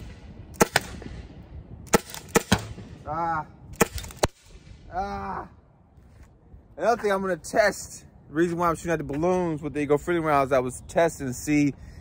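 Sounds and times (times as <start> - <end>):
launcher firing sharp pops: 0.0 - 3.0, 3.7 - 4.8.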